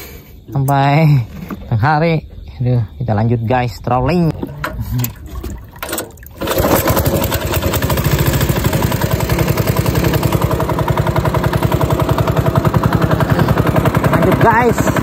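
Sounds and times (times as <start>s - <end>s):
small boat engine running: 4.3s - 15.0s.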